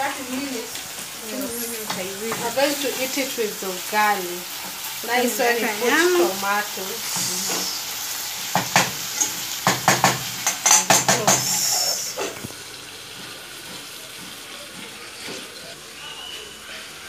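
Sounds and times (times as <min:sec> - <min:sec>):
food sizzling in a saucepan: 0:00.0 - 0:17.0
spoon scraping and knocking pan: 0:01.9 - 0:03.1, 0:07.0 - 0:07.8, 0:08.4 - 0:12.5, 0:13.1 - 0:15.6.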